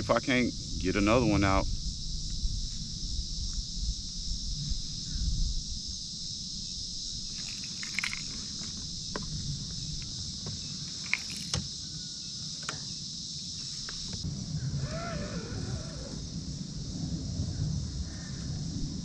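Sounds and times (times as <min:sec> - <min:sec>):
insect chorus drone: 0:00.0 - 0:19.0
fishing gear clicks and taps: 0:07.4 - 0:08.4, 0:11.0 - 0:11.6.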